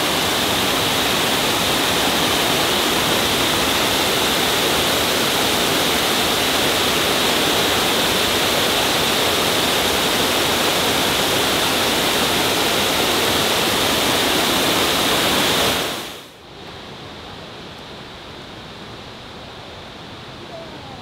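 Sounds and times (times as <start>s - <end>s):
waterfall rushing over stone: 0.0s - 16.4s.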